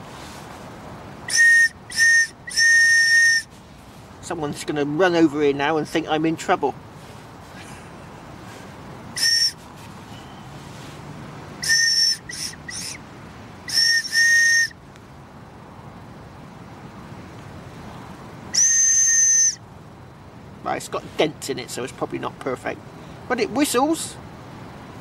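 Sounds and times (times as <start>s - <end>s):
shrill whistle blasts: 1.3s - 3.5s, 9.2s - 10.5s, 11.6s - 13.0s, 13.7s - 14.8s, 18.5s - 19.6s.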